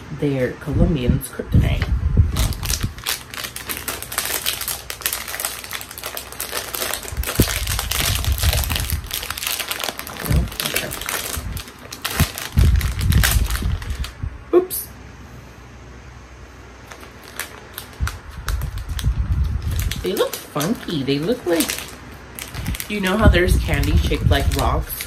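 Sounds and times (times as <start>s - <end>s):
plastic snack bag crinkling: 2.3s - 14.2s, 16.8s - 25.0s.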